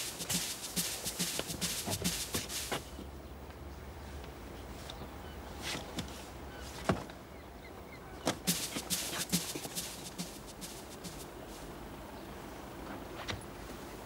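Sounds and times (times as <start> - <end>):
boots knocking on wooden deck: 0.0 - 2.9, 8.3 - 11.2
quick footsteps: 0.0 - 2.9, 8.3 - 11.6.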